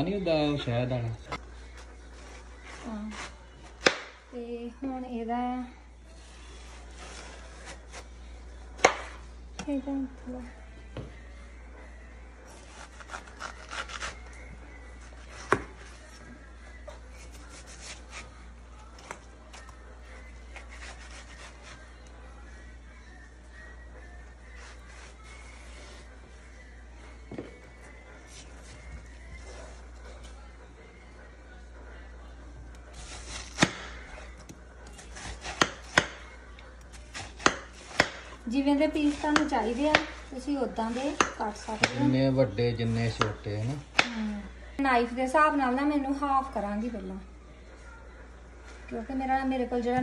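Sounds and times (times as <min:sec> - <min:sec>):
knife slicing watermelon: 0:12.5 - 0:14.3, 0:15.1 - 0:16.1, 0:20.5 - 0:21.9, 0:33.0 - 0:36.3, 0:36.9 - 0:40.3, 0:40.9 - 0:42.2.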